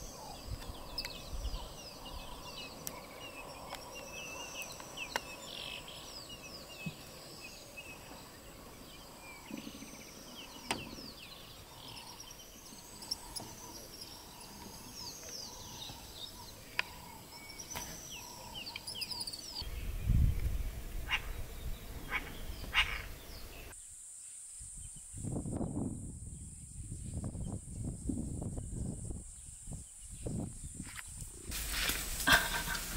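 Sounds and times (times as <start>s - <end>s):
birds chirping and whistling: 0.0s - 23.8s
high insect hum: 0.0s - 32.9s.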